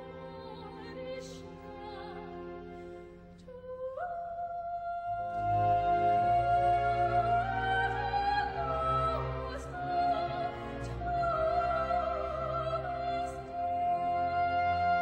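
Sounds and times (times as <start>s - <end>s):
operatic singing voice: 0.0s - 2.5s, 3.5s - 15.0s
orchestral accompaniment: 5.2s - 15.0s.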